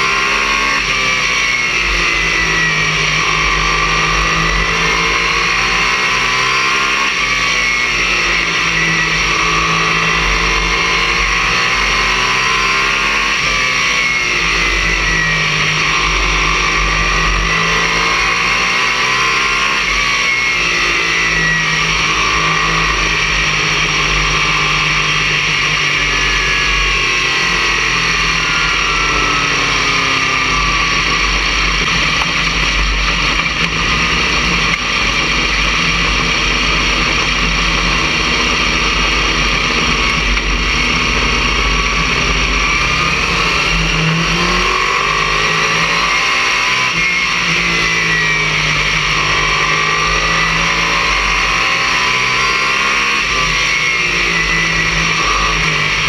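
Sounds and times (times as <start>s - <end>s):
racing car engine: 0.0s - 56.0s.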